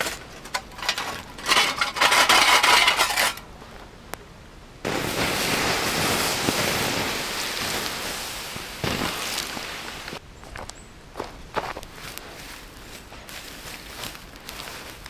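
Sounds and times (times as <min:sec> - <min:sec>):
embers rattling in metal stove: 0:00.0 - 0:03.4
water hissing on hot embers: 0:04.8 - 0:10.2, 0:11.9 - 0:15.0.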